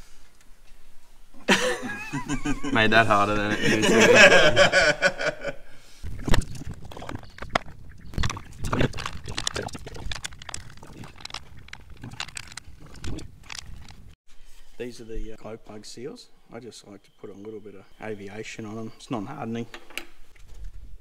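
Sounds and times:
metal parts clicking and knocking: 6.7s - 14.1s.

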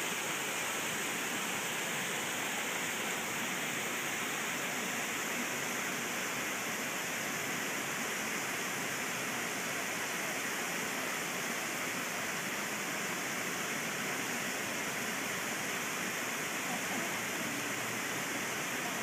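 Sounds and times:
water rushing over dam: 0.0s - 19.0s.

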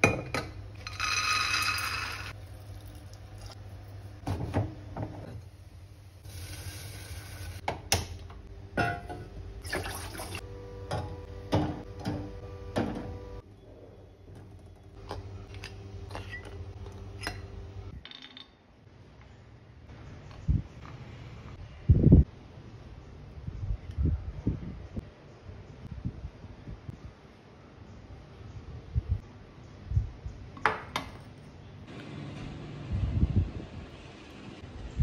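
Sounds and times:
water sloshing in pot: 9.6s - 10.4s.

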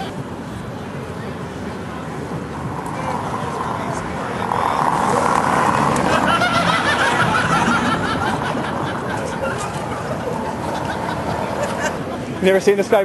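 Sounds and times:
street traffic: 0.0s - 13.0s.

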